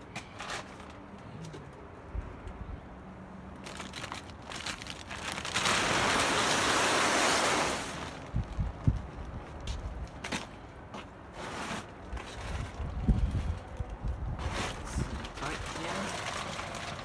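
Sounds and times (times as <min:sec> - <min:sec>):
plastic tarp rustling: 0:03.6 - 0:08.6, 0:14.4 - 0:17.0.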